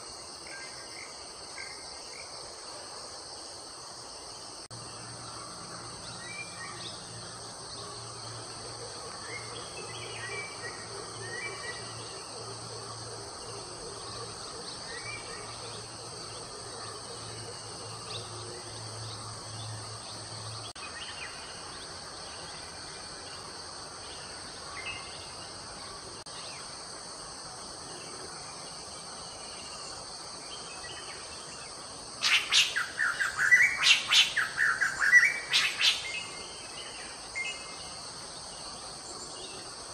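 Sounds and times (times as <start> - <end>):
insects droning: 0.0 - 39.9
bird chirps: 32.2 - 36.5.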